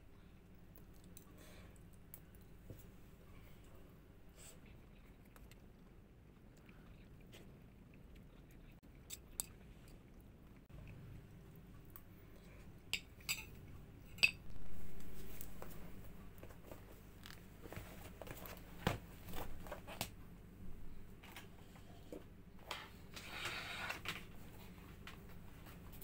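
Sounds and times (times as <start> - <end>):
cutlery clinking against dishes: 13.0 - 14.4
items handled and packed into bag: 14.4 - 20.2.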